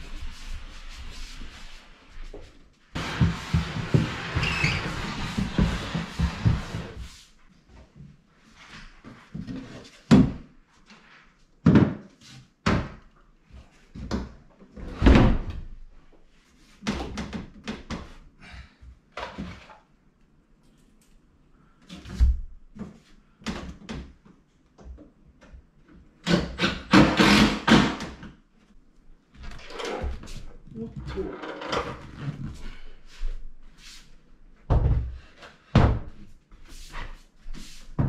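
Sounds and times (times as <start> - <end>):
scraping and shuffling: 0.0 - 10.0.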